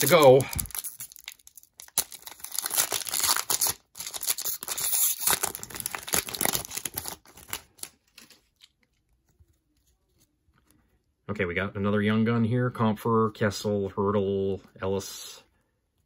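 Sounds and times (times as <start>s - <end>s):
foil wrapper crinkling: 0.0s - 9.0s.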